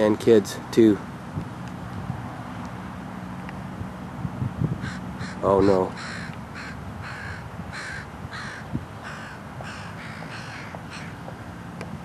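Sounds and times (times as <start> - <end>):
bird harsh calls: 4.8 - 11.8.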